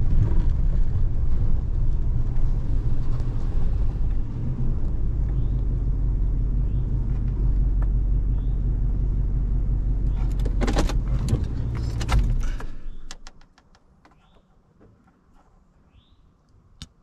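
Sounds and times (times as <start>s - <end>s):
truck engine and road rumble: 0.0s - 17.0s
sharp clicks and rattles: 10.0s - 15.2s.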